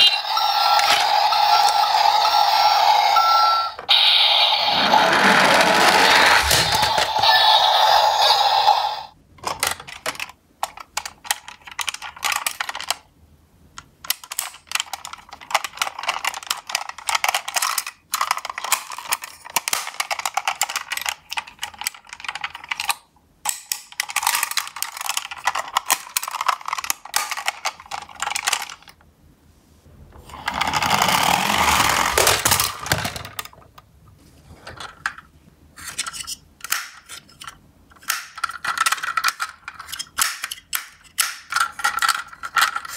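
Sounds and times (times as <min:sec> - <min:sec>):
plastic toy trucks clicking and rattling: 0:00.0 - 0:02.6, 0:09.4 - 0:13.1, 0:13.8 - 0:29.0, 0:30.2 - 0:33.8, 0:34.6 - 0:42.9.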